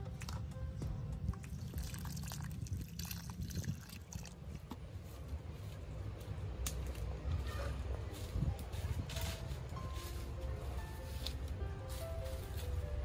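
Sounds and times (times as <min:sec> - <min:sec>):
water dripping and pattering: 0:01.2 - 0:04.9
water pouring onto soil: 0:01.4 - 0:04.7.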